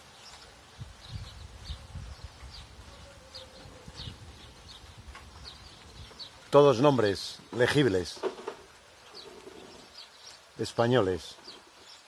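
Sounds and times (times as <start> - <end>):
small birds chirping: 0.0 - 12.0
wind rumble on microphone: 0.7 - 6.5.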